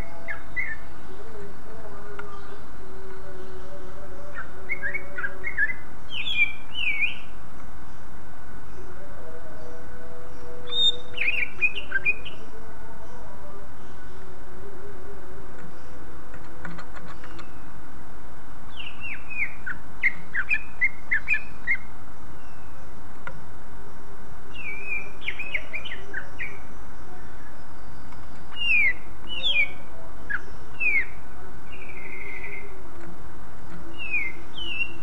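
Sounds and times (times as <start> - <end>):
bird whistling song: 0.0 - 1.2, 3.5 - 8.0, 10.3 - 12.5, 18.7 - 22.9, 24.5 - 32.8, 33.8 - 35.0.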